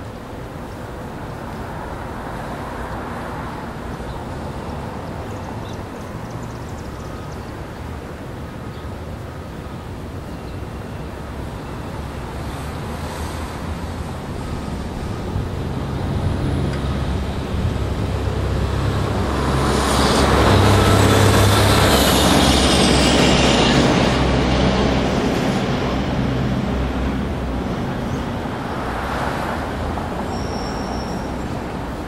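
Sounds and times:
low traffic rumble: 0:00.0 - 0:32.0
vehicle passing: 0:12.6 - 0:32.0.

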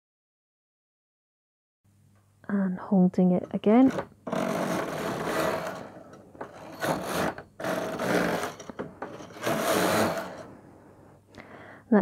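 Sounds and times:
faint steady hum: 0:01.9 - 0:12.0
knitting machine carriage whirring: 0:03.6 - 0:10.6.

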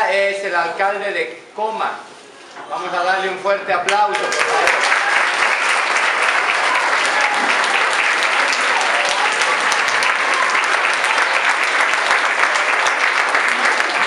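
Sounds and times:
crowd applauding: 0:03.9 - 0:14.0.

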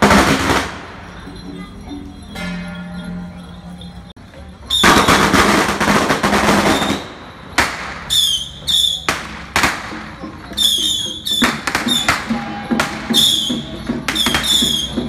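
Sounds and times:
sharp bangs: 0:00.0 - 0:01.2, 0:04.8 - 0:08.4, 0:09.0 - 0:10.2
firecrackers crackling: 0:00.0 - 0:03.2, 0:04.6 - 0:15.0
high metallic ringing strikes: 0:00.0 - 0:04.2.

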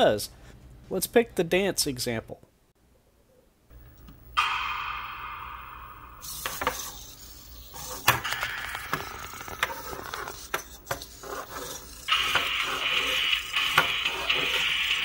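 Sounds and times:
sharp clicks and knocks: 0:07.8 - 0:11.0
sound from robot speaker: 0:12.1 - 0:15.0.

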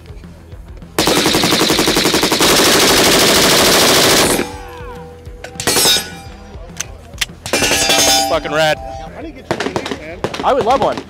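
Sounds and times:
automatic rifle fire: 0:01.0 - 0:04.6.

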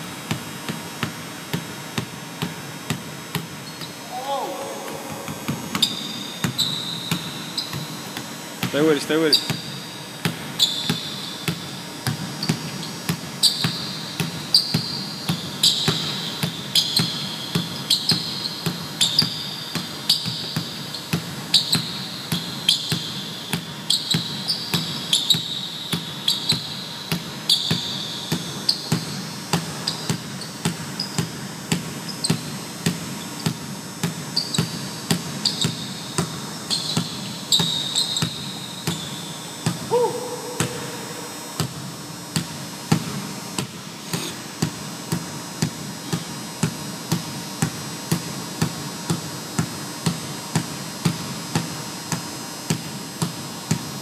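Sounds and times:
basketball dribbling on hardwood: 0:00.2 - 0:04.0, 0:04.9 - 0:54.0
sneaker squeaks on floor: 0:03.6 - 0:09.9, 0:10.6 - 0:33.6, 0:34.3 - 0:41.8.

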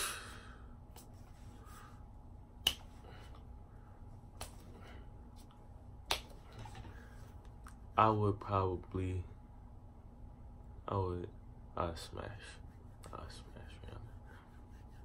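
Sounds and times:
finger snaps: 0:02.6 - 0:03.4, 0:04.3 - 0:04.7, 0:06.0 - 0:06.4.

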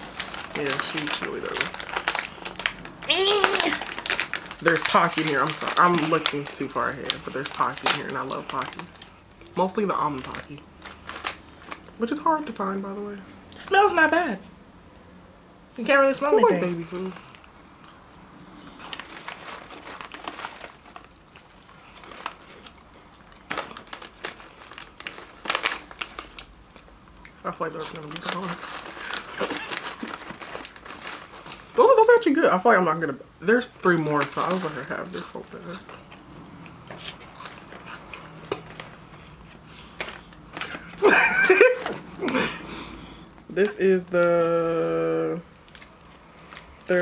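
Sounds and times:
plastic packaging crinkling: 0:00.0 - 0:13.0, 0:16.2 - 0:32.8, 0:33.5 - 0:47.0
snack crunching: 0:17.2 - 0:31.8, 0:35.1 - 0:40.8.

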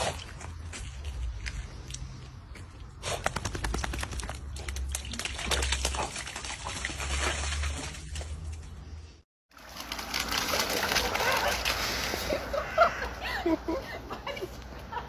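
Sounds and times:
paws splashing through puddle: 0:00.0 - 0:08.7, 0:09.6 - 0:12.5.

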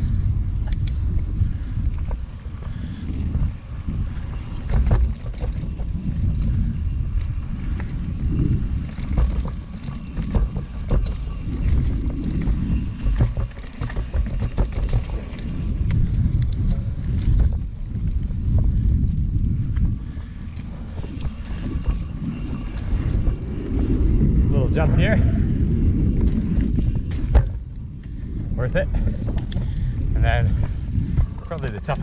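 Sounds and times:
bike clicks and rattles: 0:00.0 - 0:32.0
wind on microphone: 0:00.0 - 0:32.0
tyres rolling on dirt: 0:02.0 - 0:18.6.

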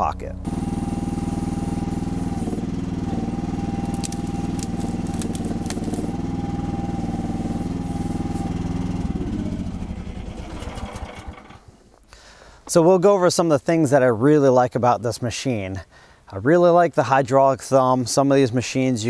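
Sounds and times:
high whine: 0:00.0 - 0:11.6
excavator engine running: 0:00.0 - 0:12.1.

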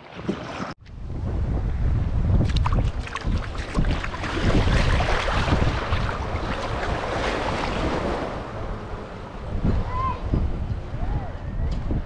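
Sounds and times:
gentle surf: 0:00.0 - 0:12.0
wind buffeting microphone: 0:00.8 - 0:12.0
feet wading through water: 0:02.4 - 0:08.7.

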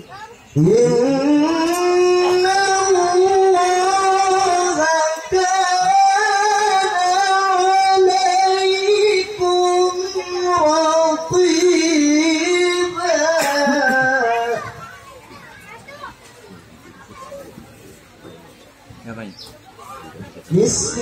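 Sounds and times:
man chanting into a microphone: 0:00.6 - 0:14.7, 0:20.5 - 0:21.0.

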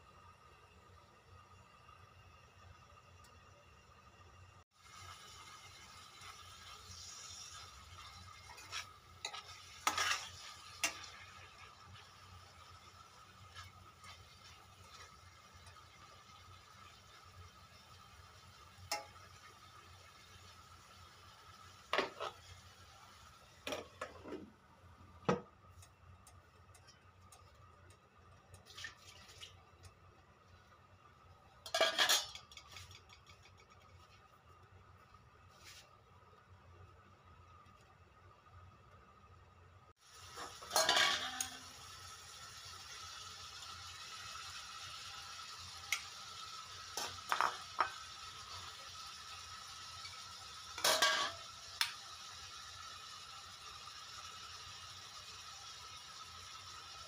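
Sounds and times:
meat sizzling: 0:03.7 - 0:24.2, 0:40.0 - 0:57.0
utensil scraping metal pot: 0:07.0 - 0:12.1, 0:21.9 - 0:22.4, 0:31.7 - 0:33.6, 0:40.4 - 0:41.6
glass lid clinking on pot: 0:40.7 - 0:41.5, 0:50.8 - 0:51.4.

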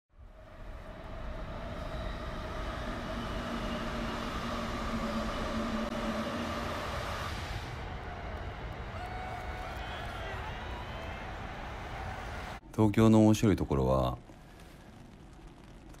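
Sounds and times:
train rumbling on track: 0:00.2 - 0:12.6
whining tones: 0:00.4 - 0:12.6.

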